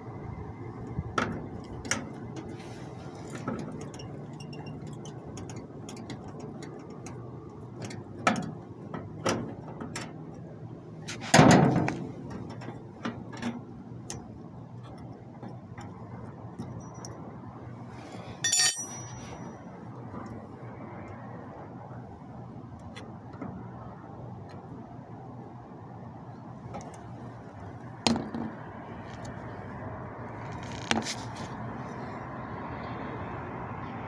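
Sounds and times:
short metal clatter: 0:18.4 - 0:19.6
tools and metal parts clicking: 0:18.4 - 0:19.6.

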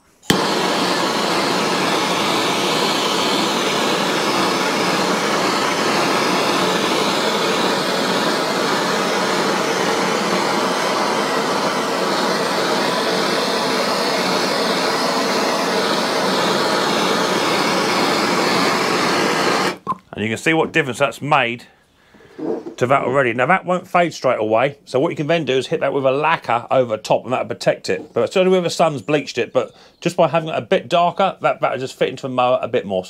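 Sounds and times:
blowtorch flame hissing: 0:00.2 - 0:19.8.

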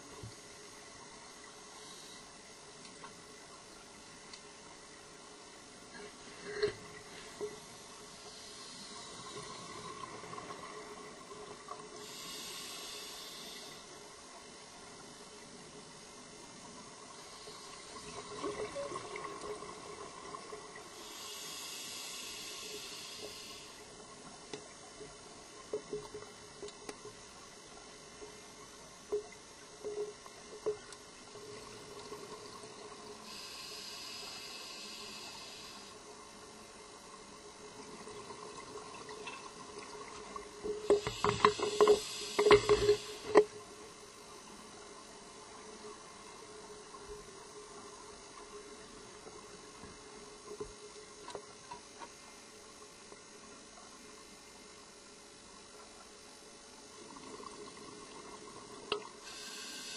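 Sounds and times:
steady underwater hiss: 0:00.0 - 0:59.9
scuba regulator inhale hiss: 0:01.8 - 0:02.4, 0:06.3 - 0:09.8, 0:12.0 - 0:14.0, 0:17.2 - 0:18.2, 0:20.9 - 0:24.0, 0:33.2 - 0:36.1, 0:40.8 - 0:43.4, 0:59.2 - 0:59.9.

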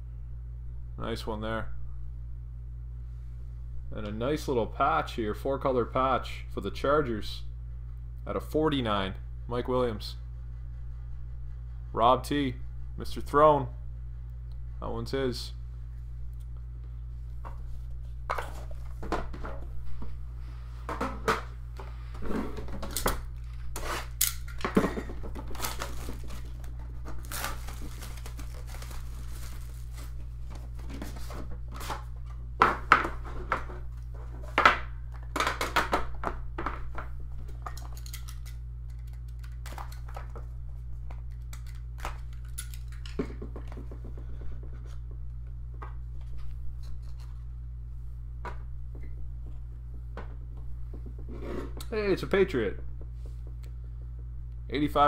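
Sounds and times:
steady low hum: 0:00.0 - 0:55.0
cardboard rustling and scraping: 0:25.1 - 0:32.2.

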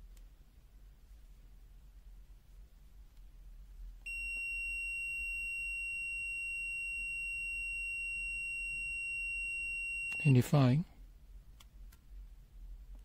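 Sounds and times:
multimeter continuity beep: 0:04.1 - 0:10.7.

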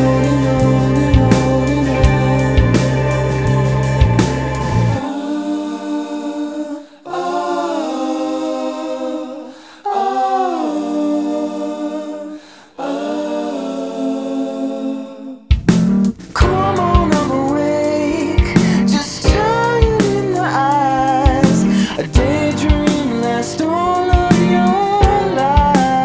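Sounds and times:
full band with drums: 0:00.0 - 0:05.0, 0:15.5 - 0:17.6, 0:18.4 - 0:20.5, 0:21.2 - 0:23.4, 0:24.1 - 0:26.0
layered sustained singing: 0:00.0 - 0:15.5, 0:16.4 - 0:26.0.

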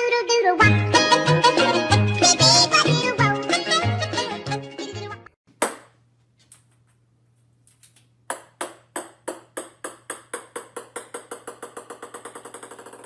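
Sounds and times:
ball bouncing on wooden floor: 0:08.3 - 0:13.0.

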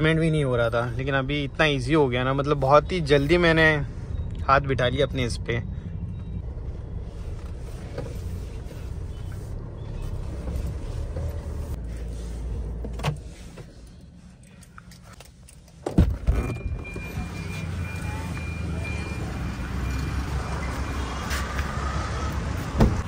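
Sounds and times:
diesel engine low rumble: 0:00.0 - 0:23.0
car door knocks: 0:22.8 - 0:23.0.

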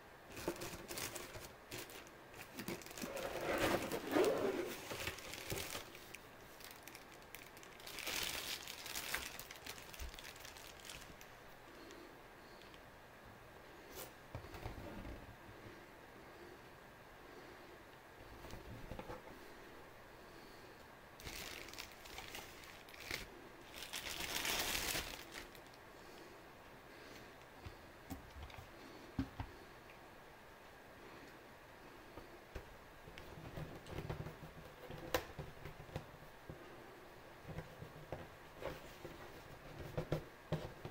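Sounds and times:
plastic bag crinkling: 0:00.3 - 0:11.4, 0:21.2 - 0:25.8.

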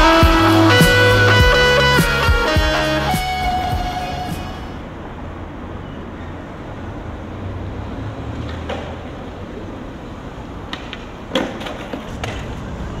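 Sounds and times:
skateboard wheels rolling on pavement: 0:07.9 - 0:13.0
skateboard wooden clacks: 0:10.7 - 0:12.6.

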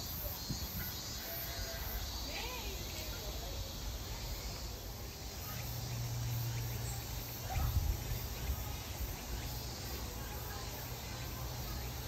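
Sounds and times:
insects chirping: 0:00.0 - 0:12.0.

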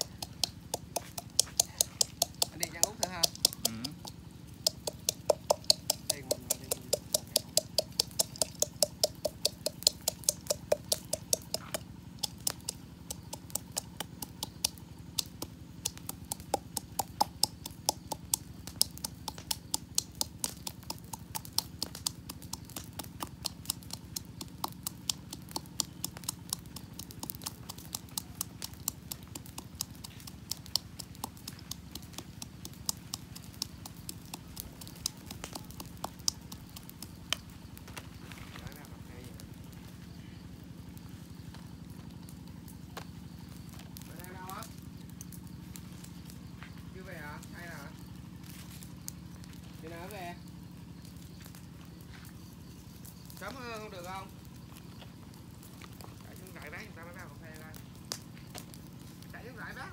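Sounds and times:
pestle pounding in a metal cup: 0:00.0 - 0:37.8.

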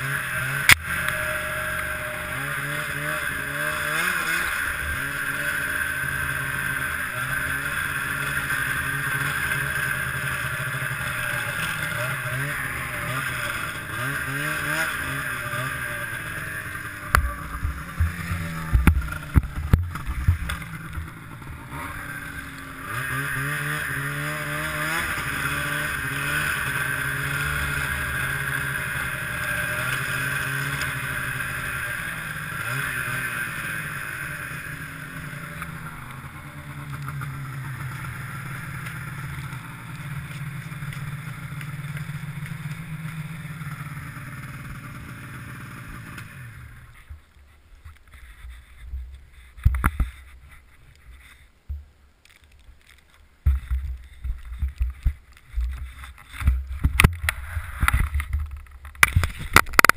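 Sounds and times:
snowmobile engine running: 0:00.0 - 0:59.9
low bumps: 0:08.5 - 0:31.0, 0:46.8 - 0:59.9.

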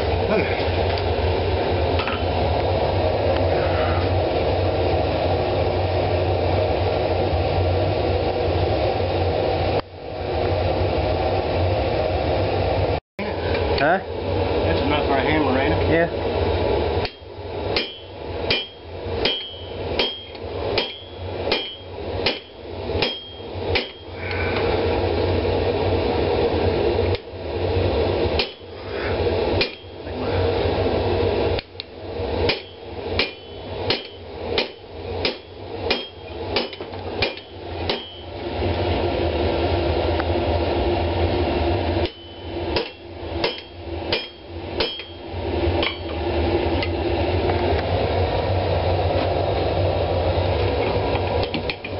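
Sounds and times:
steady hum: 0:00.0 - 0:51.9
anvil ringing: 0:17.0 - 0:24.2, 0:29.6 - 0:30.1, 0:32.5 - 0:38.3, 0:42.0 - 0:46.1
hammer striking steel on anvil: 0:17.0 - 0:24.2, 0:28.4 - 0:28.7, 0:29.6 - 0:30.1, 0:32.5 - 0:38.3, 0:42.0 - 0:46.2.

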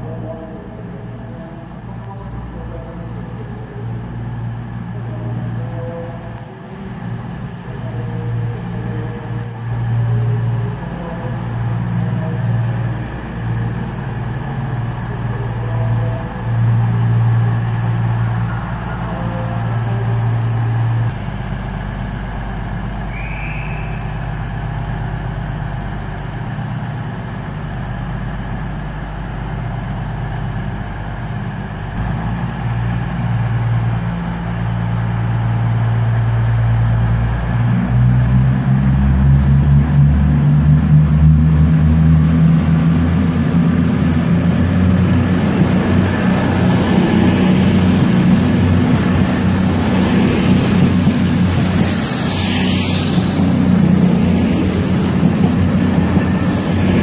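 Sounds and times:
train diesel engines humming: 0:00.0 - 0:57.0.

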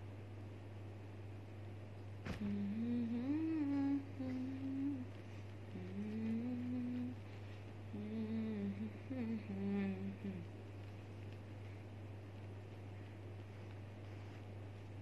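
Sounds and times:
low electrical hum: 0:00.0 - 0:15.0
woman humming a tune: 0:02.3 - 0:07.2, 0:07.9 - 0:10.5.

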